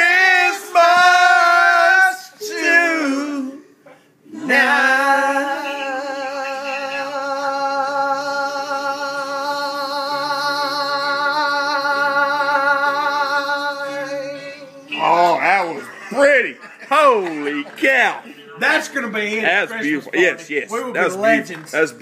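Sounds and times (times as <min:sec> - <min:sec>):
lower voice singing: 0:00.0 - 0:03.7, 0:04.3 - 0:15.1.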